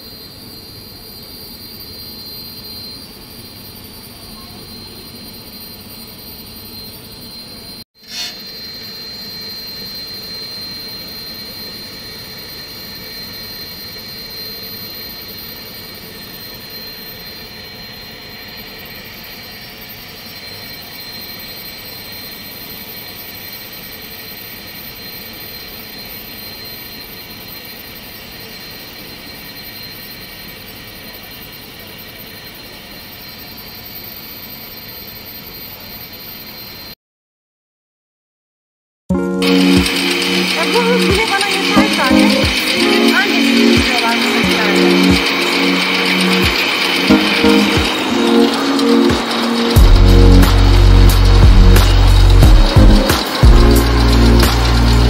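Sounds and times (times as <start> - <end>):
cutting machine motor hum: 39.3 - 55.0.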